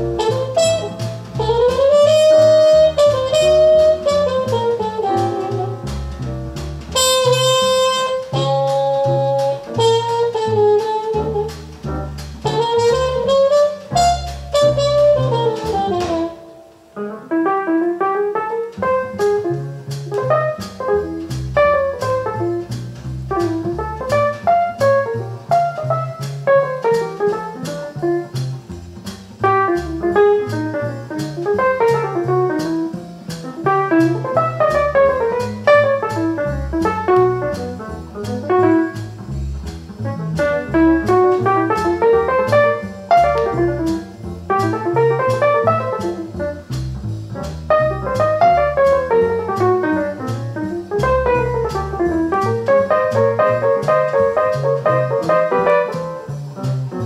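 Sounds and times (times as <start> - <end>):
horn melody: 0.0 - 5.9, 6.9 - 11.7, 12.4 - 16.7
walking bass: 0.0 - 57.0.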